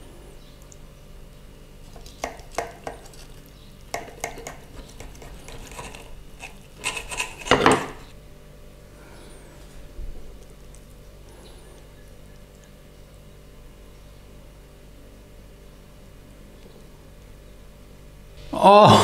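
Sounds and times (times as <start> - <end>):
crispy crust crunching: 1.8 - 8.1
cutlery touching plate: 6.8 - 8.1.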